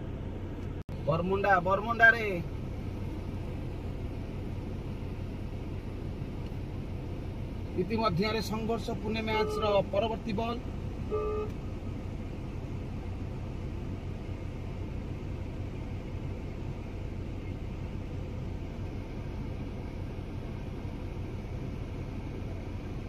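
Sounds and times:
low rumbling background noise: 0.0s - 23.0s.

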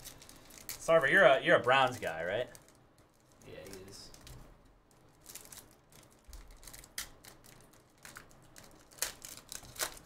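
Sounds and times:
foil wrapper crinkling: 0.0s - 10.0s.

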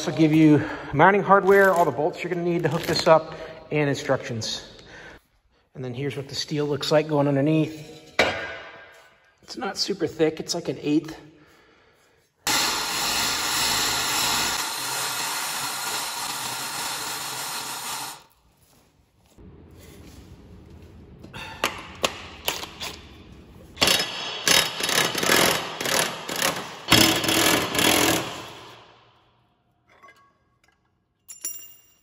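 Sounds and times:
impact wrench hammering: 23.8s - 28.8s.

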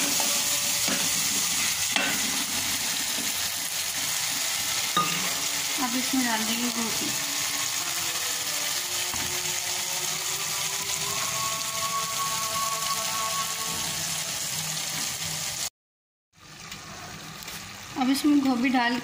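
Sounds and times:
masala sizzling in oil: 0.0s - 15.7s, 16.4s - 19.0s.

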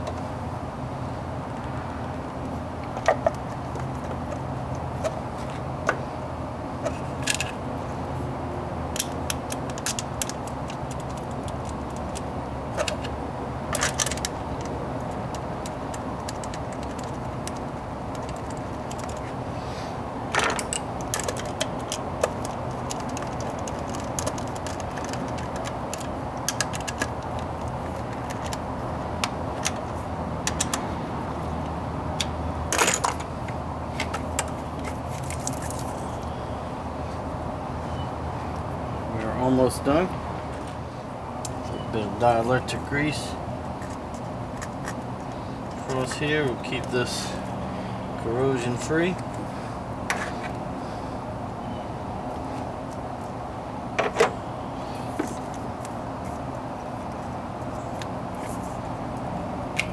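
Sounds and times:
steady low hum: 0.0s - 59.9s
hand tools clicking: 30.4s - 30.8s.

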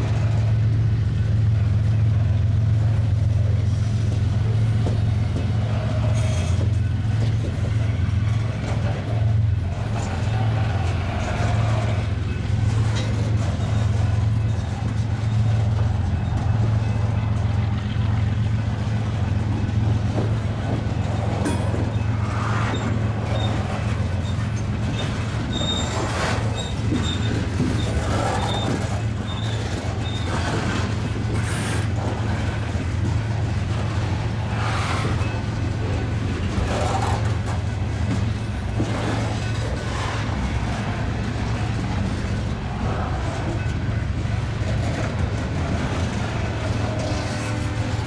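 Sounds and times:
train wheels rumbling on rail: 0.0s - 48.0s
wheel clacks: 4.4s - 48.0s
faint wheel squeals: 21.0s - 32.0s.

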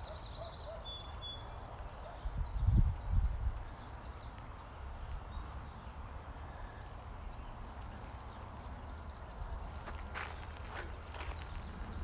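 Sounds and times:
small bird chirping: 0.0s - 12.0s.

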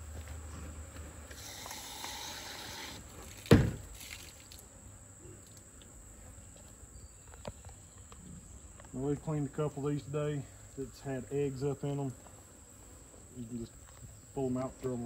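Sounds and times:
insects chirring: 0.0s - 15.0s
sharp thump: 3.5s - 3.9s.

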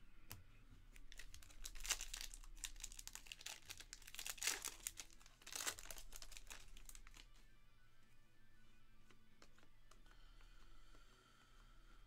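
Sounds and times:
foil wrapper crinkling and tearing: 1.0s - 7.3s.

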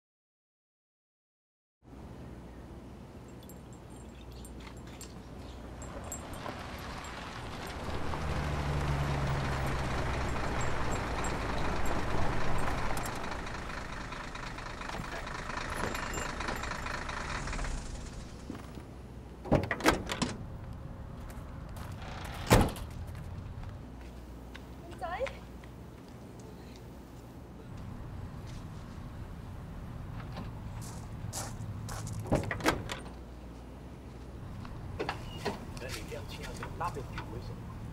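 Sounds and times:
car engine running: 5.7s - 19.0s
car doors shutting: 19.4s - 20.4s, 21.8s - 23.4s, 32.2s - 33.2s.

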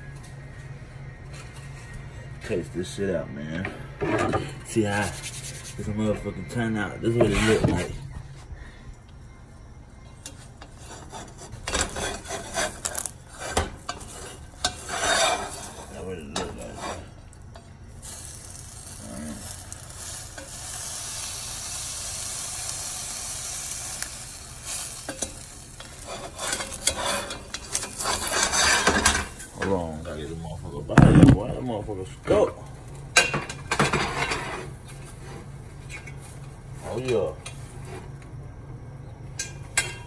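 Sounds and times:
utensil scraping a pan: 10.2s - 17.2s, 25.1s - 29.6s
food sizzling: 10.2s - 31.6s.

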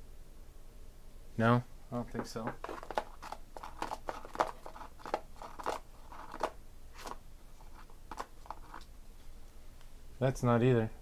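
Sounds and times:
trading cards crinkling and clicking: 2.3s - 8.9s.

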